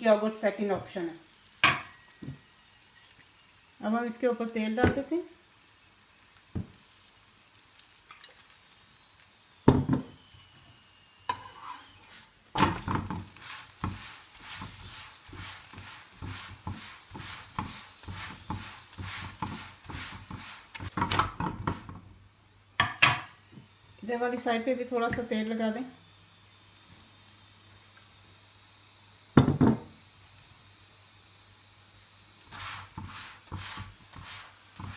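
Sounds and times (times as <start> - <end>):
flatbread sizzling in oil: 0.0 - 34.9
metal spatula scraping pan: 11.3 - 21.9.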